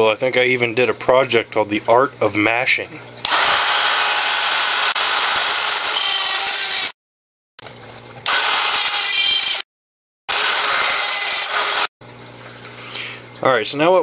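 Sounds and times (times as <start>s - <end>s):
rotary tool grinding plastic: 3.3s - 7.0s, 8.2s - 9.6s, 10.3s - 11.9s.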